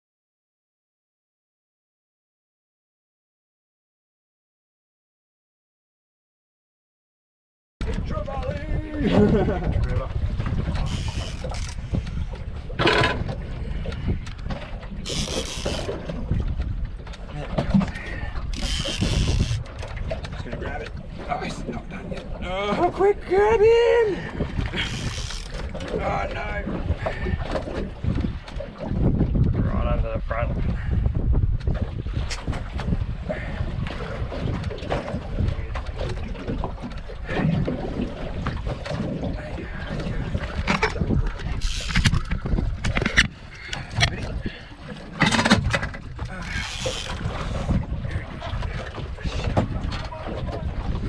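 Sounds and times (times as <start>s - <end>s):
knocks and splashes: 7.8s - 23.5s, 24.2s - 29.7s, 30.6s - 51.0s
choppy water against boat hull: 7.8s - 51.0s
wind buffeting microphone: 7.8s - 51.0s.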